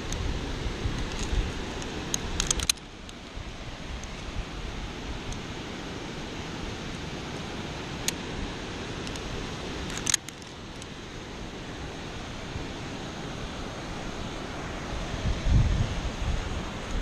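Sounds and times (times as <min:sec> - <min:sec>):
wind on microphone: 0:00.0 - 0:07.7, 0:11.9 - 0:17.0
sharp clicks: 0:01.0 - 0:03.2, 0:09.8 - 0:10.5.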